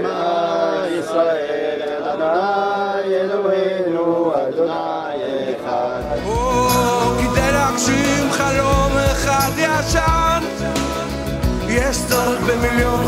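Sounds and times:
song with bass beat: 0:06.2 - 0:13.0.

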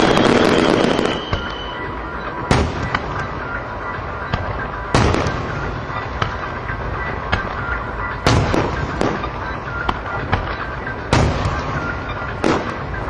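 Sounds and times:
fireworks crackles and pops: 0:00.0 - 0:01.8
fireworks bursting with bangs: 0:00.0 - 0:13.0.

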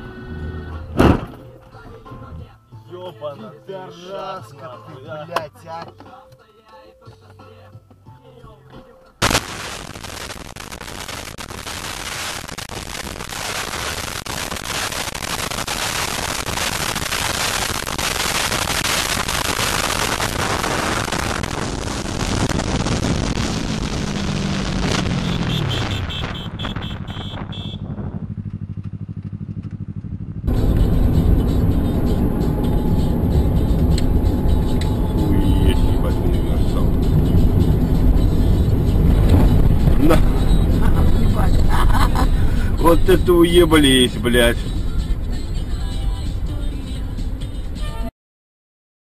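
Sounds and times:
road and engine noise: 0:00.0 - 0:48.1
heavy low rumble: 0:16.2 - 0:43.4.

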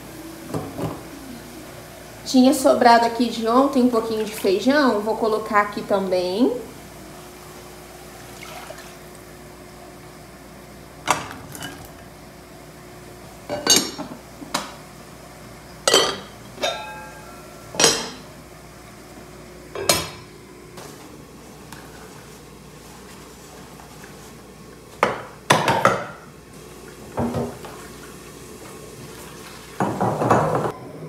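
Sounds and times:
faint steady hum: 0:00.0 - 0:31.0
pot lids clanking on pots: 0:13.5 - 0:14.1, 0:15.9 - 0:18.3, 0:19.8 - 0:20.3.

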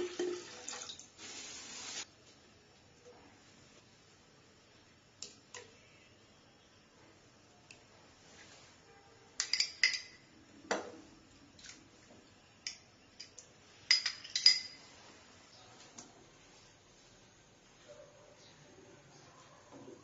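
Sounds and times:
metal spoon clinking on container: 0:09.4 - 0:10.2.

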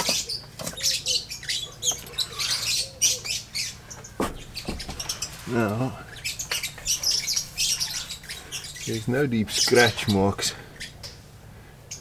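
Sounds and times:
birds chirping: 0:00.0 - 0:12.0
dull thump: 0:04.2 - 0:05.1.

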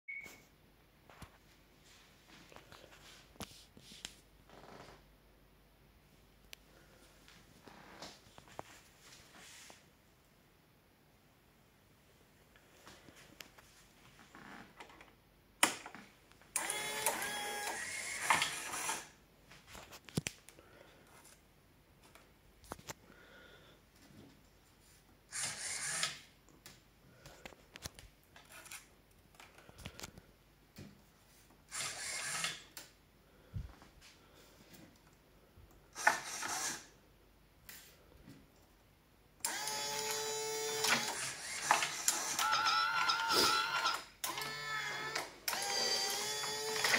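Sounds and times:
machine motors whining: 0:16.6 - 0:19.1, 0:39.4 - 0:46.9.

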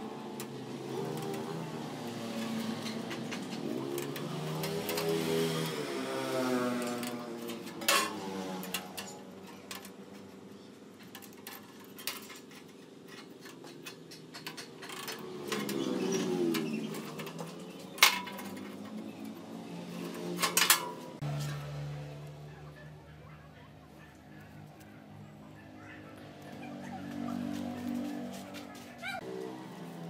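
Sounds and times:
metallic clicks and clinks: 0:11.0 - 0:19.4.

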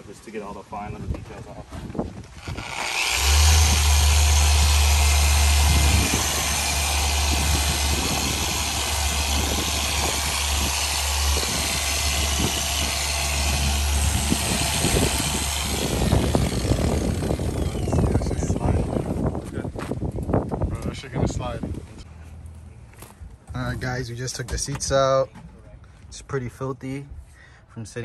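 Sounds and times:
electric polisher humming: 0:02.4 - 0:18.6.

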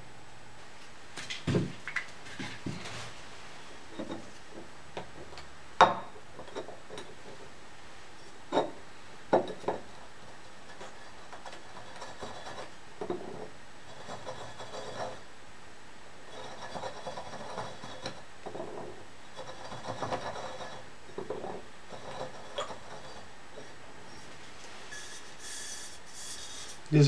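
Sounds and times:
marker scraping on metal bottle: 0:24.9 - 0:26.8.

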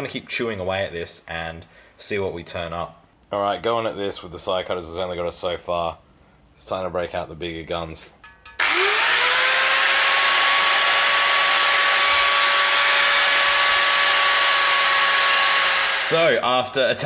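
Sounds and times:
angle grinder whining: 0:08.6 - 0:16.4
grinder hissing on metal: 0:08.6 - 0:16.4.

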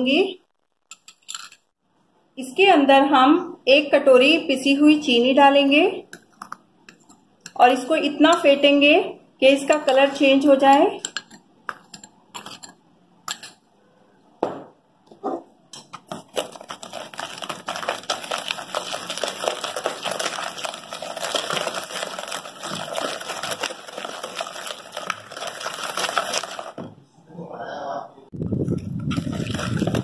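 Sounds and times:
spoon tapping: 0:10.7 - 0:13.6.

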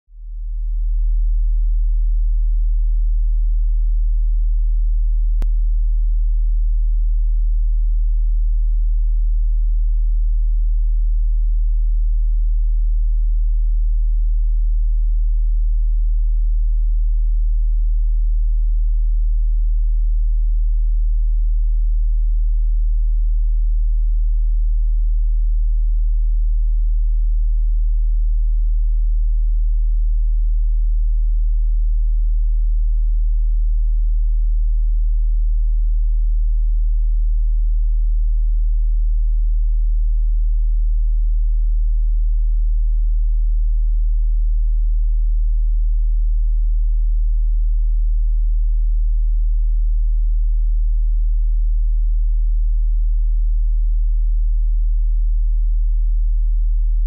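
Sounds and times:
deep sine tone: 0:00.1 - 0:57.0.

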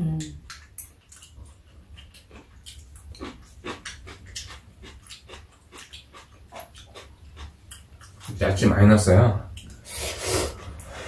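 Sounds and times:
chewing and slurping noodles: 0:00.5 - 0:08.4.

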